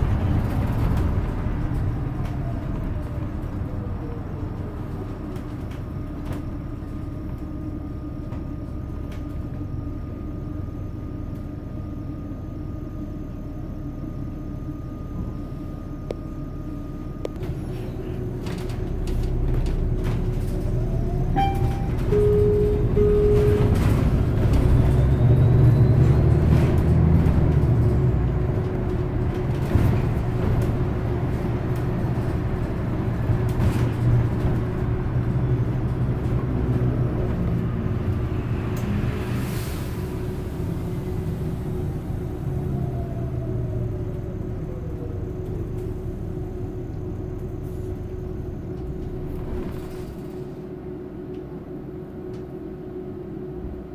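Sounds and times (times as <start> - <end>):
bus drive hum: 0.0 - 53.9
short beeps: 21.4 - 24.2.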